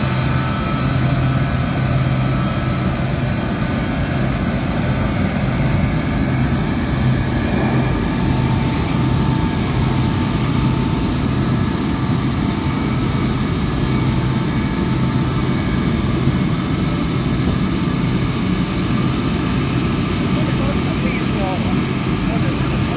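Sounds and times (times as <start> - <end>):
high engine whine: 0.0 - 22.9
jet engines running: 0.0 - 22.9.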